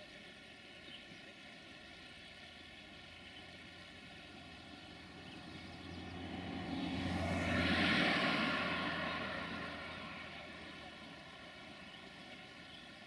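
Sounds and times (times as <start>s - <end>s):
vehicle passing: 4.1s - 12.2s.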